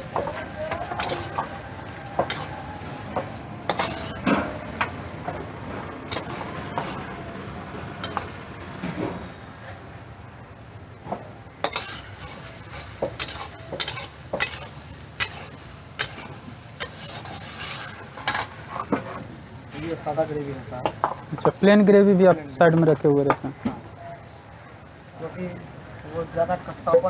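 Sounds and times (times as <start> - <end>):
ladle scraping metal pan: 0.3 - 1.5, 3.7 - 4.5, 6.1 - 7.2, 11.6 - 19.2.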